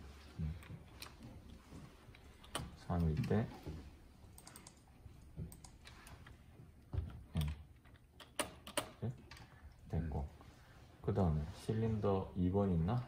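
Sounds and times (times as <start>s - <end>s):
computer keyboard typing: 4.3s - 5.9s.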